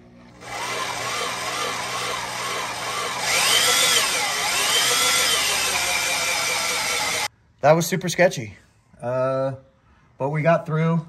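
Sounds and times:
drill cutting through metal: 0.4s - 7.3s
squealing drill whine: 0.4s - 7.3s.

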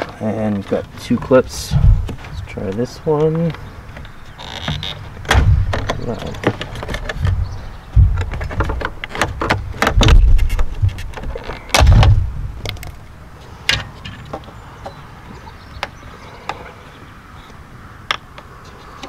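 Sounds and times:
plastic clicking and creaking: 0.0s - 13.1s
dull thumps of plastic housing: 0.6s - 13.0s.

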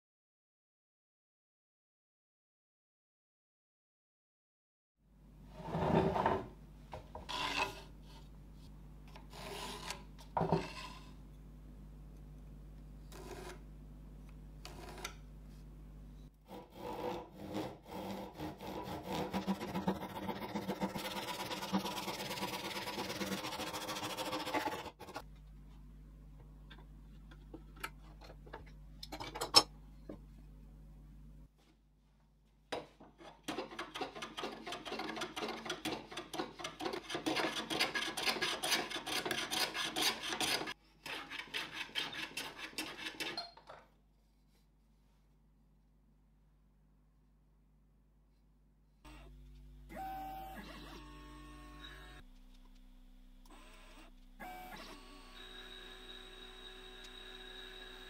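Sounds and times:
hand plane shaving wood: 7.3s - 7.9s, 16.4s - 25.2s, 33.2s - 43.4s
handsaw cutting wood: 16.4s - 25.2s, 33.4s - 43.4s.

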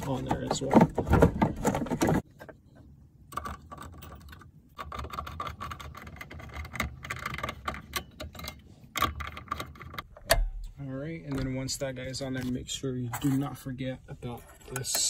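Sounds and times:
plastic clicks and rattles: 3.3s - 10.5s.

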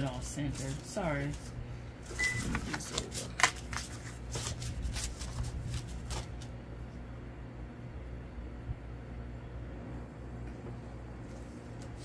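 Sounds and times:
paper cards shuffling: 0.4s - 6.5s.

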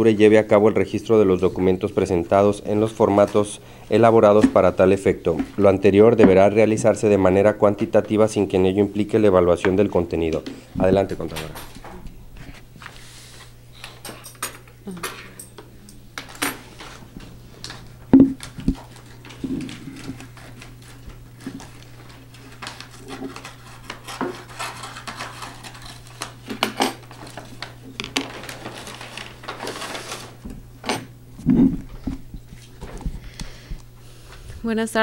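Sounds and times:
steady low hum: 0.0s - 28.1s, 30.2s - 35.0s
papers rustling: 16.7s - 30.4s
knocks and clicks on table: 18.2s - 18.8s.

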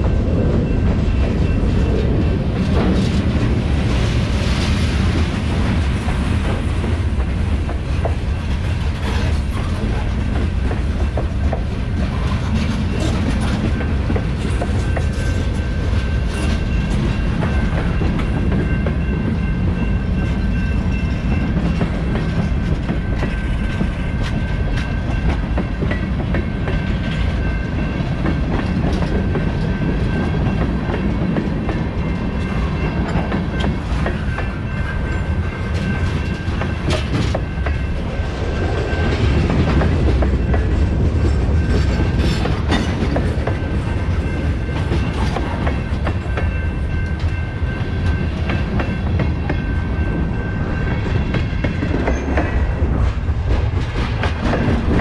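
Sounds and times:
freight train rumbling past: 0.0s - 55.0s
wheels clicking over rail joints: 28.1s - 37.9s.

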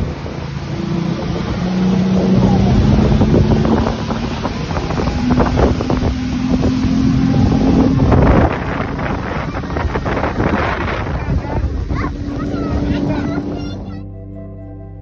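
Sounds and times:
wind buffeting microphone: 0.0s - 14.0s
speedboat engine droning: 0.0s - 15.0s.

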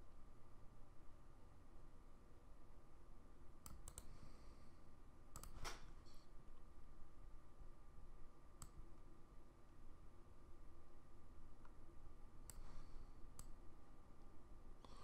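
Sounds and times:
faint steady hum: 0.0s - 15.0s
computer mouse clicks: 3.6s - 4.2s, 5.3s - 6.0s, 8.6s - 8.9s, 12.4s - 13.6s.

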